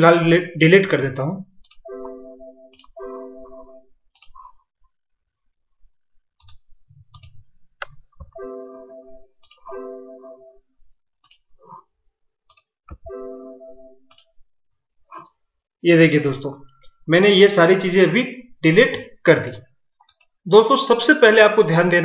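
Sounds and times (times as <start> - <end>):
alert chimes: 1.9 - 3.9, 8.4 - 10.6, 13.1 - 14.1
computer mouse clicks: 4.1 - 4.5, 6.4 - 8.3, 11.2 - 11.5, 12.5 - 13.0, 20.0 - 20.4.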